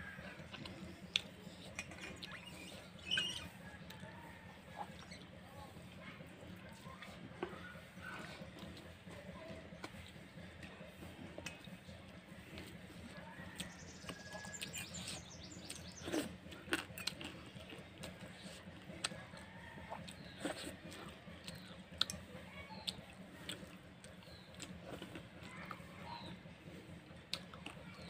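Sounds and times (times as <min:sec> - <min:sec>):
fingers working wet rice: 0:00.0 - 0:28.0
chewing with mouth smacks: 0:00.1 - 0:04.1, 0:12.5 - 0:28.0.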